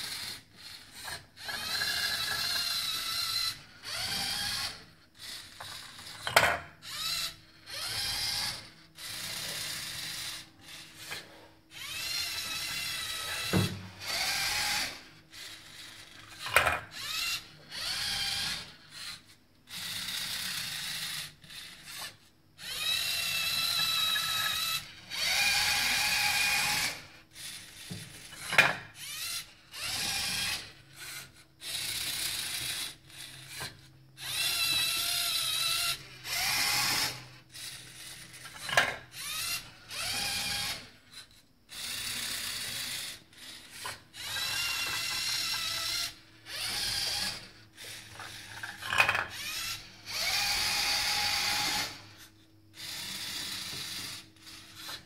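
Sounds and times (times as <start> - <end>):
servo motors whirring: 0.0 - 55.0.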